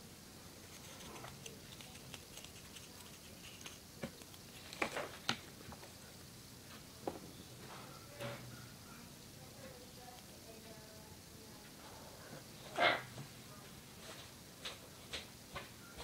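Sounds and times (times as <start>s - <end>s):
stick stirring glue in plastic cup: 0.6s - 5.4s.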